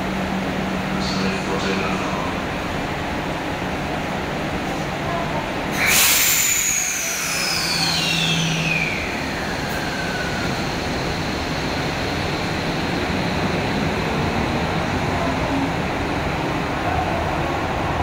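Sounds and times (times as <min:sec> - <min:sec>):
subway train rumbling: 0:00.0 - 0:18.0
high whine: 0:05.8 - 0:17.3.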